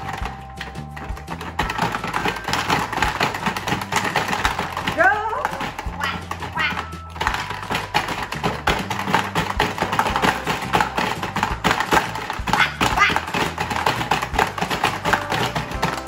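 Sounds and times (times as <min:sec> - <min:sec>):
marbles rattling on plastic: 0:00.0 - 0:16.0.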